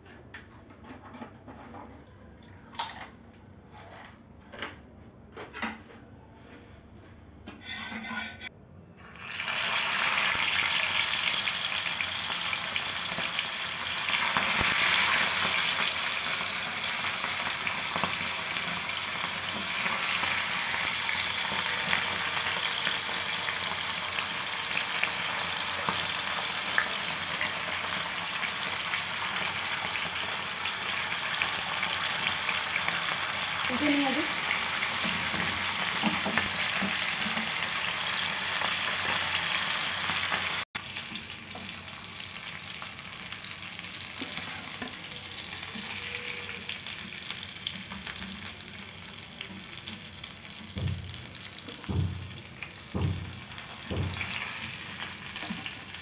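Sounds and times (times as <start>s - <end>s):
fish sizzling in a pan: 9.0s - 56.0s
short knocks: 50.8s - 54.4s.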